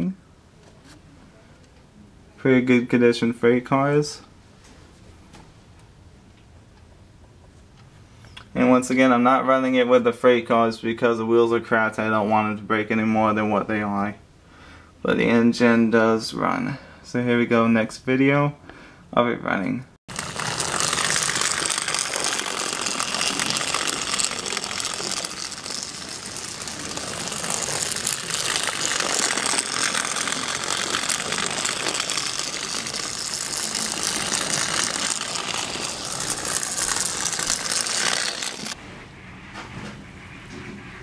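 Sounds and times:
toy train running on track: 0:20.1 - 0:38.8.

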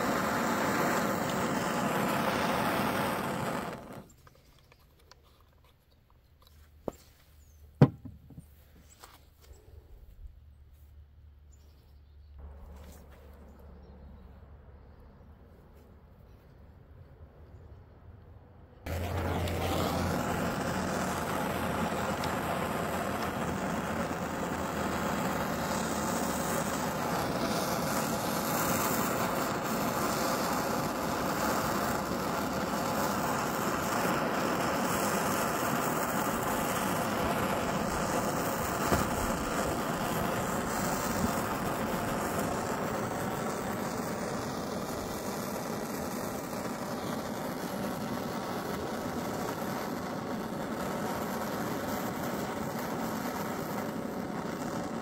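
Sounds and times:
gas torch flame burning: 0:00.0 - 0:04.2, 0:18.8 - 0:55.0.

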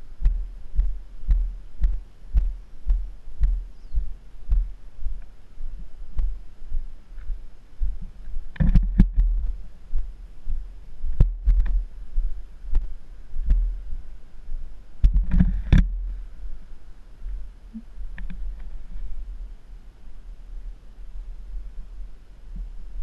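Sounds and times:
muffled footstep thuds: 0:00.2 - 0:04.7, 0:11.1 - 0:11.8.

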